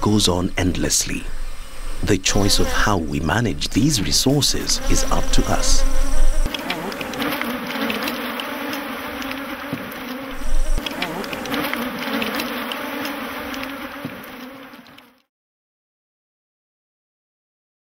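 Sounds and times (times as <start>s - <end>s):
honeybees buzzing: 1.1s - 15.2s.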